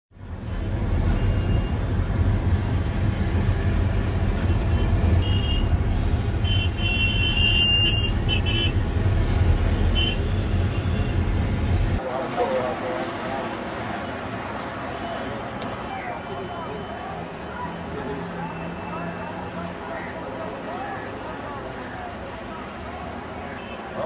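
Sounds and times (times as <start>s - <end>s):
car horns honking: 4.7s - 8.8s, 9.7s - 11.2s.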